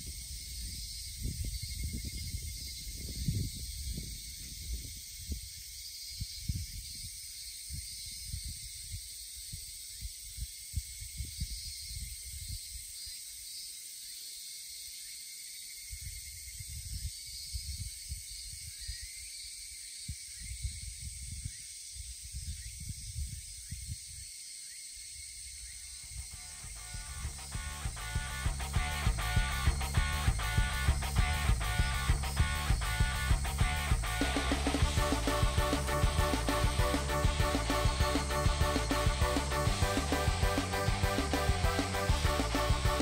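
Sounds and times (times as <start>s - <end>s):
wind buffeting microphone: 0.0s - 5.6s
steady high hiss: 26.3s - 43.0s.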